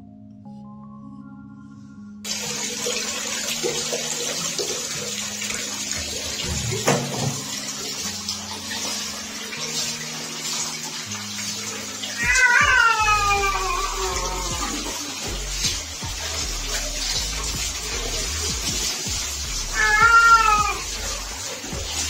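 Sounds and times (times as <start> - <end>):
tap water running: 2.3 - 22.0
knock: 6.5 - 7.4
cat meowing: 12.1 - 15.0, 19.7 - 20.9.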